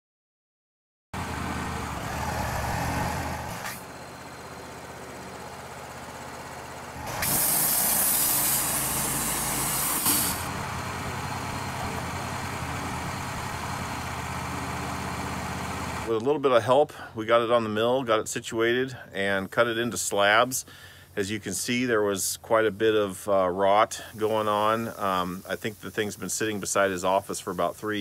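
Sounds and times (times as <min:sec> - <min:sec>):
hydraulic loader lifting log: 0:01.2 - 0:16.1
sawmill engine running: 0:01.2 - 0:16.2
loud hiss: 0:07.0 - 0:13.9, 0:23.8 - 0:28.0.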